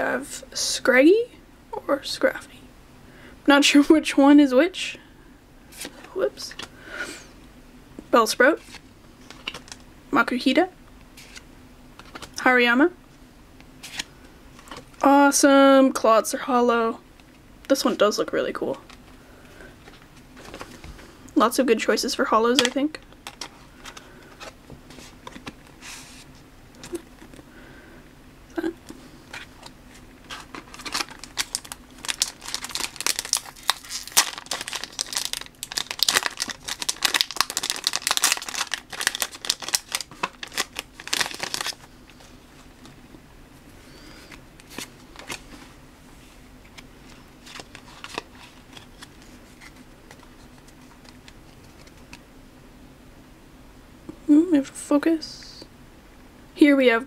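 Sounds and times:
foil pack tearing and crinkling: 0:30.3 - 0:41.9.

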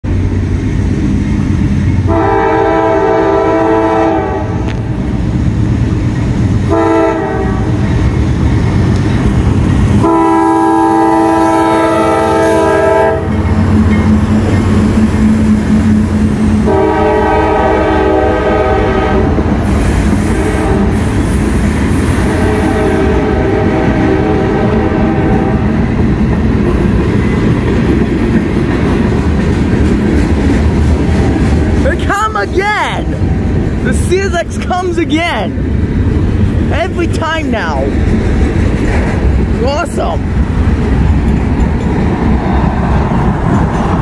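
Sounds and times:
train rumbling by: 0:00.0 - 0:44.0
locomotive air horn blasts: 0:02.1 - 0:04.6, 0:06.7 - 0:07.7, 0:10.0 - 0:13.3, 0:16.7 - 0:19.4, 0:20.3 - 0:21.0, 0:22.3 - 0:25.7.

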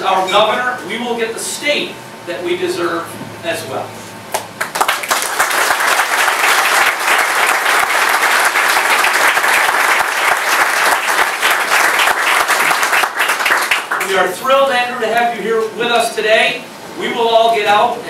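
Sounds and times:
audience applauding: 0:04.4 - 0:14.2.

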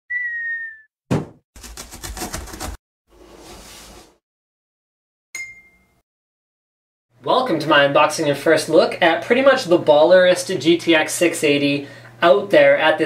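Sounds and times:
sharp thump: 0:01.1 - 0:01.4
ringing chime: 0:05.4 - 0:06.0.

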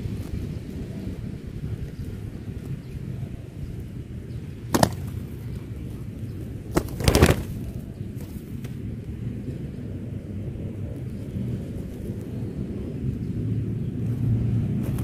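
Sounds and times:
low wind rumble on microphone: 0:00.0 - 0:15.0
dove wings flapping: 0:06.7 - 0:08.4.

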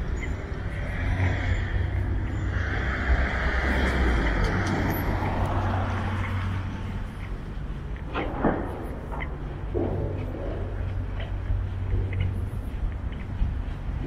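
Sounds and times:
car passing: 0:00.0 - 0:13.0.

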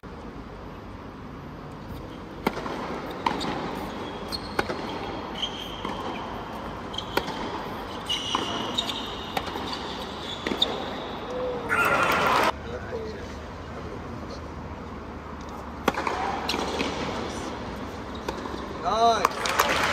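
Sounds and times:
racket hitting tennis ball: 0:01.9 - 0:11.1, 0:15.8 - 0:18.8
shoes squeaking on court: 0:01.9 - 0:12.5, 0:15.5 - 0:18.8.

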